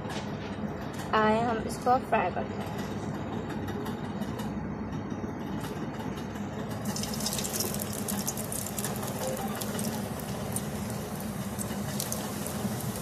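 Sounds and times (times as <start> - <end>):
steady low hum: 0.0 - 13.0
food sizzling in hot oil: 6.8 - 13.0.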